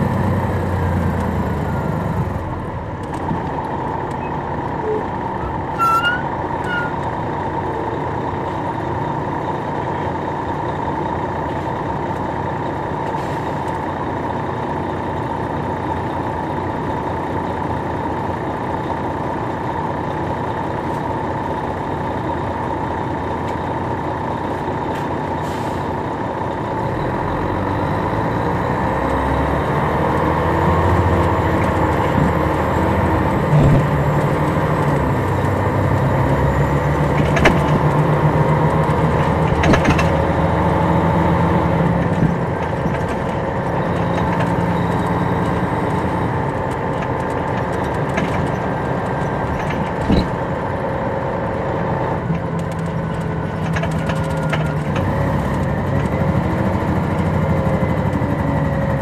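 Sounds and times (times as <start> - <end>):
bus diesel engine pulling: 0.0 - 59.0.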